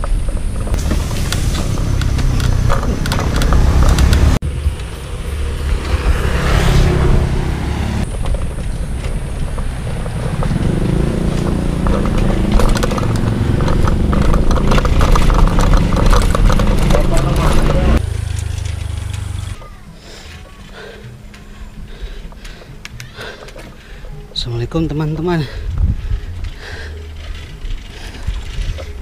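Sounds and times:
wind rumbling on microphone: 0.0 - 18.0, 25.4 - 29.0
road traffic: 0.0 - 29.0
vehicle passing: 0.8 - 19.7.

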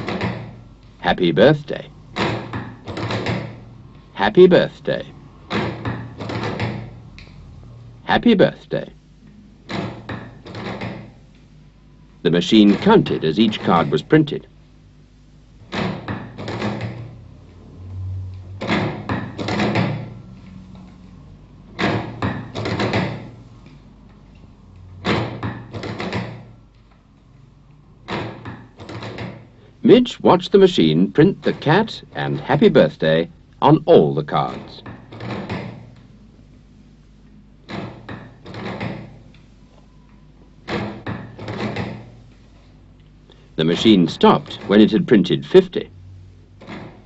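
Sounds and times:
printing press clunks and clicks: 0.0 - 7.0, 9.6 - 11.2, 12.3 - 14.4, 15.6 - 17.2, 18.6 - 20.3, 21.7 - 23.4, 25.0 - 26.6, 28.0 - 36.0, 37.6 - 39.3, 40.6 - 42.2, 43.6 - 45.7
low hum: 17.1 - 21.7.

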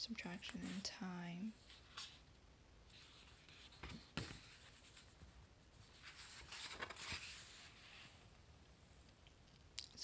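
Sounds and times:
book pages turning: 5.9 - 8.2.

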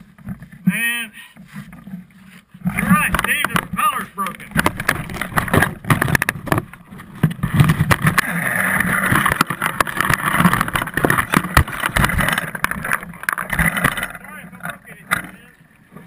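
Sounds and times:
rattling knocks on camera housing: 4.6 - 8.2.

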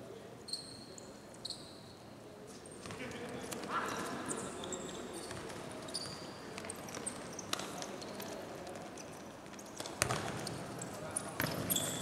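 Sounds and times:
sports hall background: 0.0 - 12.0
shoes squeaking on floor: 3.9 - 12.0.

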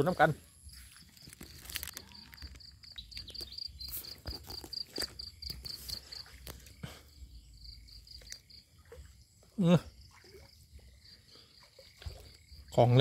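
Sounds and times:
insect chirping trill: 0.0 - 13.0
steps through grass: 0.7 - 2.7.

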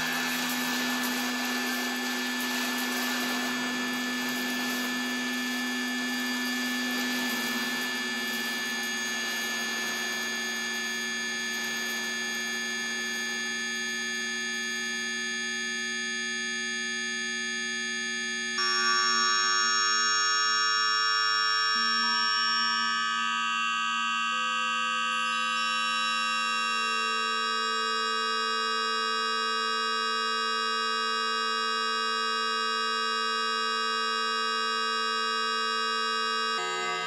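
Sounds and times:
electronic drone chord: 0.0 - 13.7, 36.5 - 37.0.

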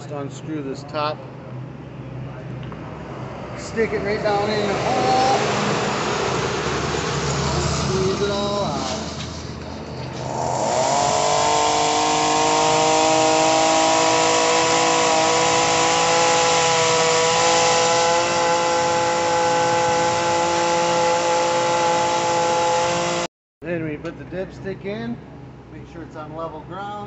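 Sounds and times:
motor droning hum: 10.1 - 23.3.

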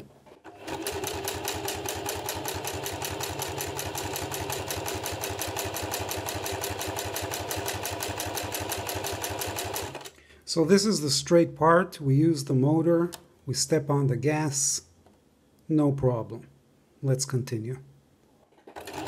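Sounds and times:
sewing machine stitching: 0.0 - 10.1, 18.5 - 19.0.

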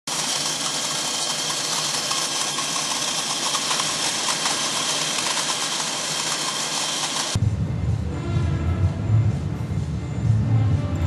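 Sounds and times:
faint rapid clatter: 0.1 - 7.4
movie projector whirring: 0.1 - 7.4.

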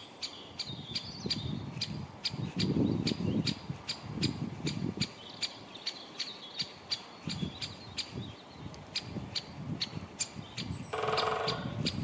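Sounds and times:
woodpecker calling: 10.2 - 12.0.

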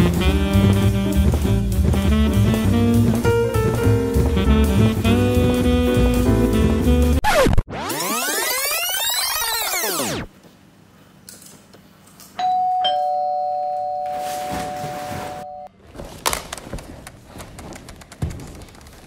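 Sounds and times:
two-tone doorbell chime: 12.4 - 15.7.

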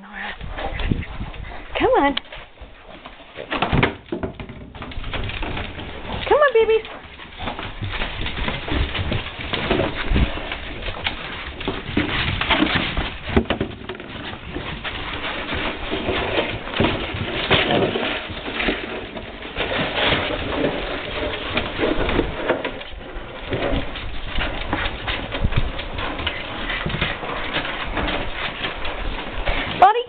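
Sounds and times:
puppies grunting and growling: 0.0 - 1.9
paws scuffling on wooden boards: 0.0 - 30.0
plastic jug knocking on wood: 3.6 - 5.6.

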